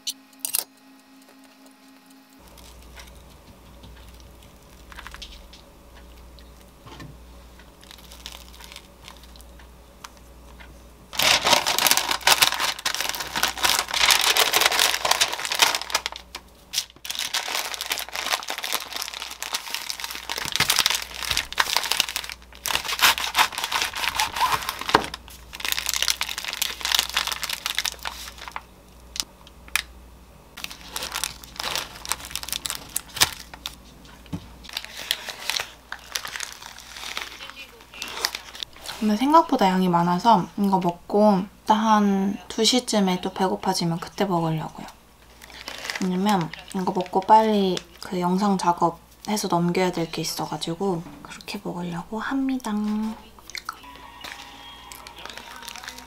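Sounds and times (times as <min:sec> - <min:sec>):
paper crinkling: 0:02.4 - 0:06.2, 0:07.8 - 0:09.6, 0:11.2 - 0:29.2, 0:30.6 - 0:39.4, 0:45.2 - 0:48.2, 0:54.2 - 0:56.0.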